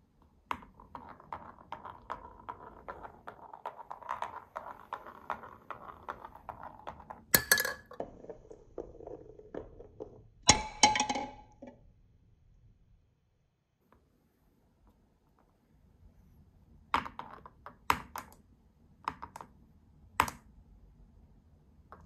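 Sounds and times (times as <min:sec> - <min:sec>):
marble rolling on wooden track: 0:00.2 - 0:11.8.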